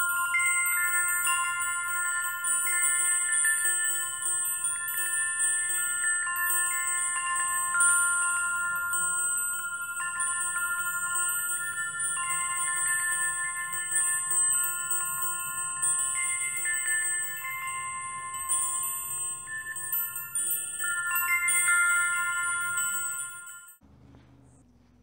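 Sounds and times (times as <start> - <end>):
wind chimes ringing: 0.0 - 23.8
faint low hum: 23.8 - 25.0.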